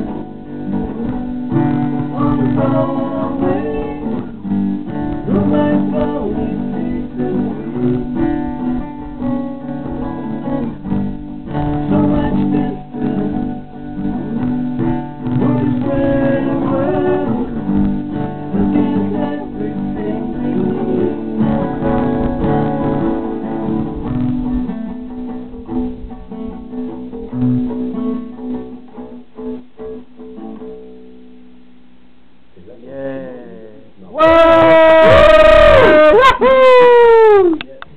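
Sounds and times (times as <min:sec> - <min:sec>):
person singing: 0:00.0 - 0:10.9, 0:11.5 - 0:23.9, 0:33.0 - 0:37.6
acoustic guitars strummed: 0:00.0 - 0:32.4, 0:34.2 - 0:37.3.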